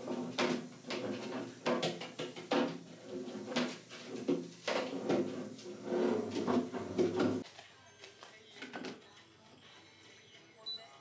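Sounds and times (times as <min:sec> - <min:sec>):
brush scrubbing inside plastic tube: 0:02.5 - 0:07.4
soft background music: 0:06.7 - 0:11.0.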